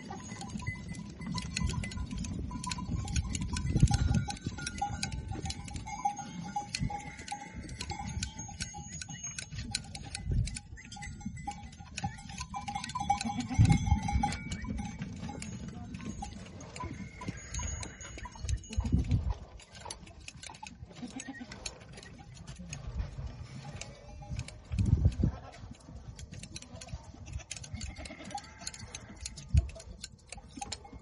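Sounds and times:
shears clipping hair: 0.0s - 22.8s, 25.6s - 30.8s
goats bleating: 13.0s - 14.6s, 20.9s - 21.7s, 27.7s - 29.4s.

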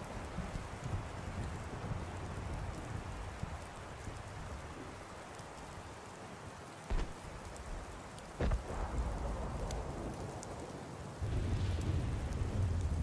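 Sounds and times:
rushing outdoor ambience: 2.0s - 12.8s
dull deep thumps: 6.9s - 9.0s.

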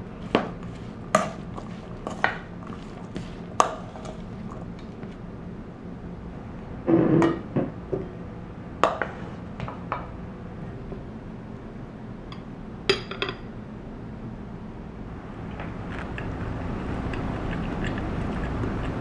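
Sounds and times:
wooden spoon scraping metal bowl: 0.2s - 4.6s
tableware clink: 12.9s - 13.5s.

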